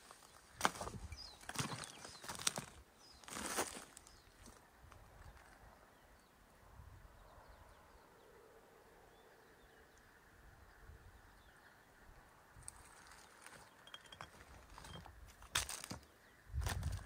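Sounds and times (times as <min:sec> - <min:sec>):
wind rumble on microphone: 0:06.6 - 0:07.9, 0:16.4 - 0:17.0.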